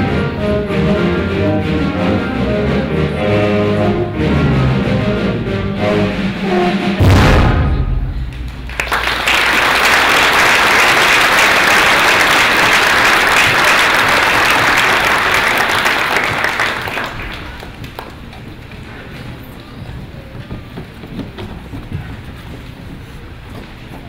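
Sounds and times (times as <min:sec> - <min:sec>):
audience applauding: 0:08.3 - 0:18.3.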